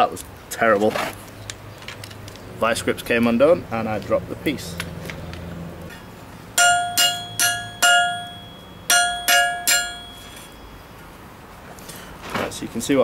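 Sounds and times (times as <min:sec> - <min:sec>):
hammer blows on anvil: 0:06.6 - 0:10.8.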